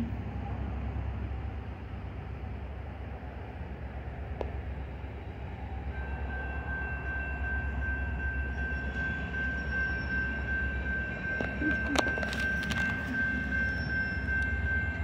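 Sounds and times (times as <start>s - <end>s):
diesel locomotive engine rumble: 0.0s - 15.0s.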